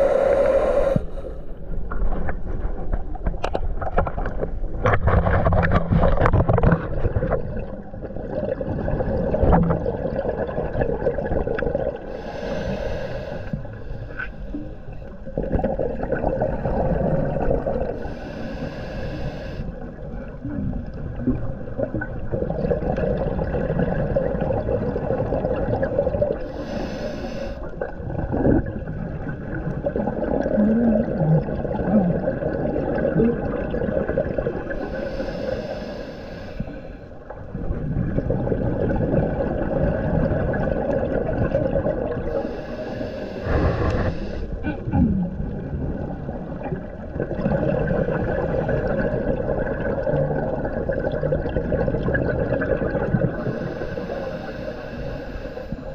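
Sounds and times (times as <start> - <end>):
regulator inhalation hiss: 0.0 - 1.5, 12.2 - 14.2, 18.0 - 19.7, 26.5 - 27.7, 34.8 - 37.0, 42.3 - 44.5, 53.4 - 55.9
exhaled air bubbling underwater: 0.0 - 55.9.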